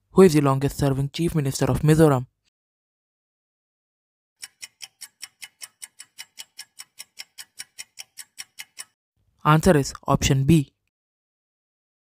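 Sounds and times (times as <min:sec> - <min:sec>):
clock ticking: 0:04.4 - 0:09.0.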